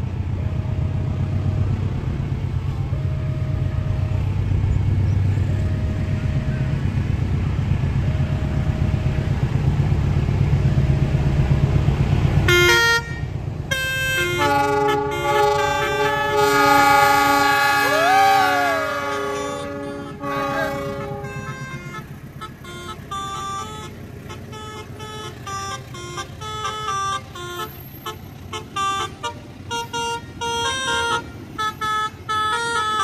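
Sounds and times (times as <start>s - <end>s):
locomotive horn: 0.0s - 11.6s, 12.4s - 33.0s
diesel locomotive engine running: 0.0s - 33.0s
multi-tone car horn: 12.4s - 33.0s.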